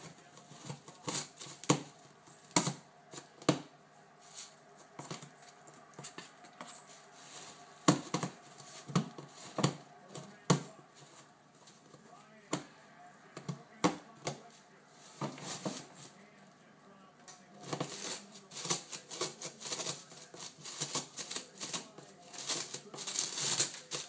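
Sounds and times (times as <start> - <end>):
paper rustling: 0.0 - 3.6, 4.2 - 12.6, 13.4 - 16.4, 17.5 - 24.0
cat scratching cardboard box: 0.0 - 11.9, 13.4 - 16.1, 17.6 - 24.0.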